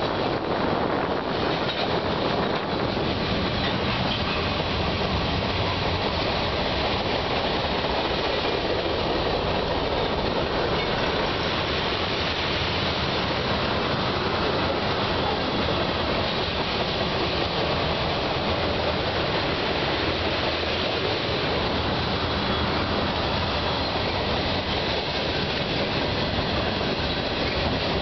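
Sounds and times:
train wheels rolling on rails: 0:00.0 - 0:28.0.

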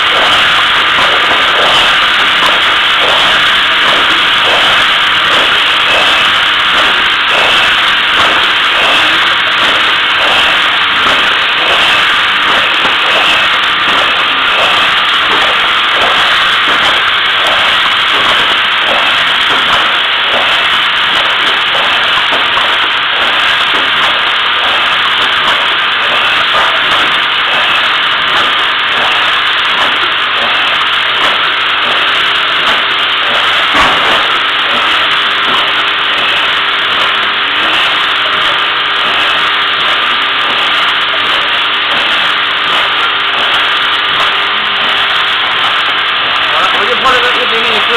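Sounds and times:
labeling machine hissing: 0:00.0 - 0:38.4
machine knocking: 0:00.0 - 0:47.9.

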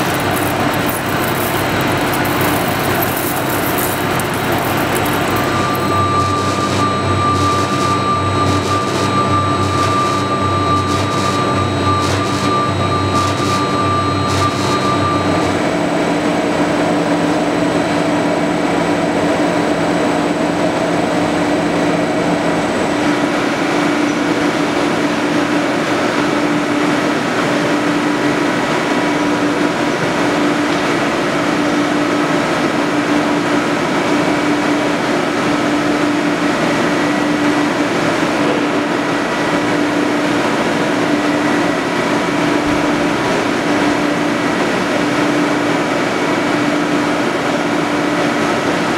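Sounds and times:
drilling machine drone: 0:00.0 - 0:15.8.

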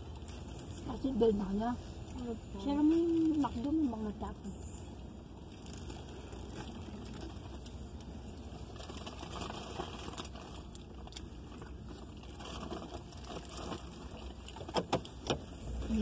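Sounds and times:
light crackles and rustles: 0:00.0 - 0:16.0
low engine and road rumble: 0:00.0 - 0:16.0.

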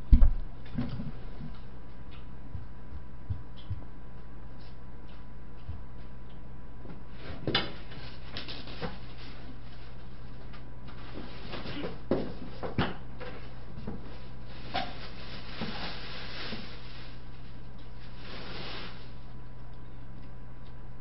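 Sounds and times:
low electrical hum: 0:00.0 - 0:21.0
rustling: 0:07.1 - 0:12.7, 0:13.3 - 0:19.4.

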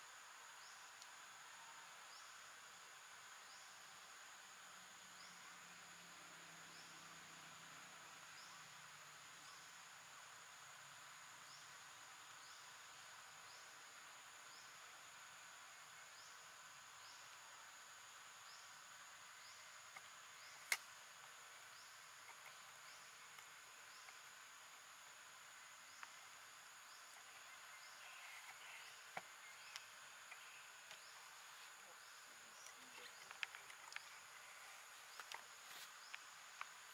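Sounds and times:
insect drone: 0:00.0 - 0:36.9
sharp click: 0:20.0 - 0:20.9.

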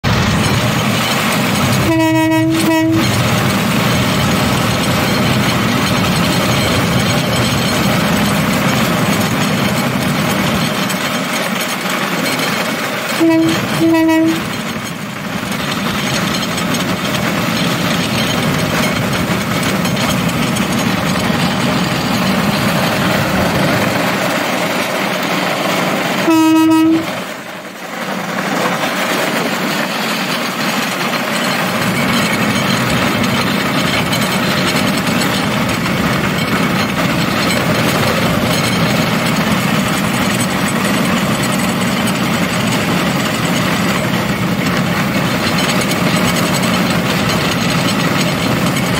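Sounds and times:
rail cart rumbling on rails: 0:00.0 - 0:48.9
horn blast: 0:01.8 - 0:03.2, 0:13.2 - 0:14.5, 0:26.2 - 0:27.2.

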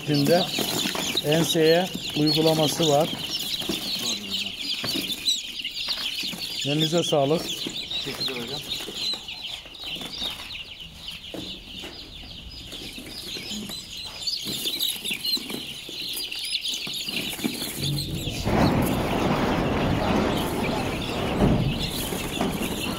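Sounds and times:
chicks peeping: 0:00.0 - 0:22.9
rough rushing noise: 0:17.8 - 0:22.9.

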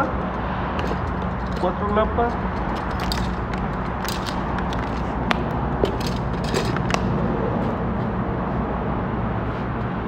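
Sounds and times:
tools clicking and clinking: 0:00.0 - 0:07.1.

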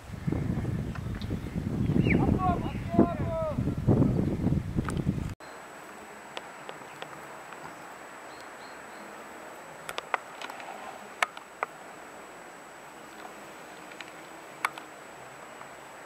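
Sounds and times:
faint hiss: 0:05.4 - 0:16.0
sharp clicks: 0:09.8 - 0:11.7, 0:13.1 - 0:14.9.

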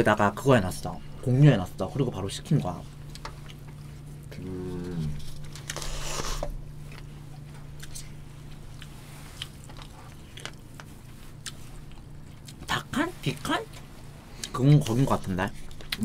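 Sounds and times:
low steady hum: 0:00.0 - 0:16.0
chewing: 0:03.0 - 0:12.7
person humming mm: 0:04.3 - 0:05.3.

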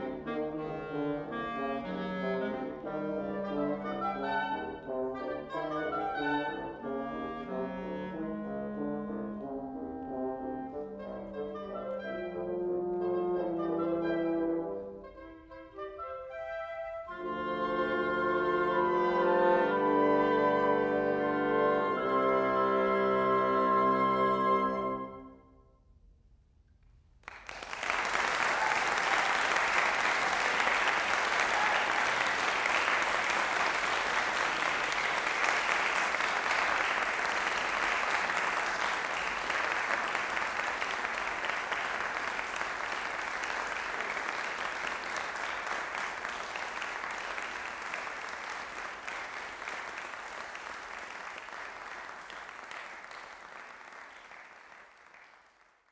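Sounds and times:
audience applause: 0:27.2 - 0:55.9.

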